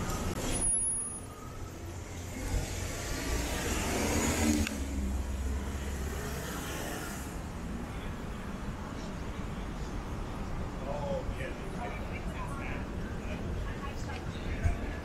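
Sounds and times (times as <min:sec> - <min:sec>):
vehicle driving past: 0:02.1 - 0:07.4.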